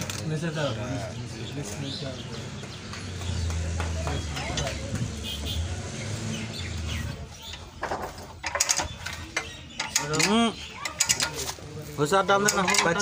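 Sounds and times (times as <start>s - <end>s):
metal knocks and clanks: 7.8s - 11.5s, 12.4s - 13.0s.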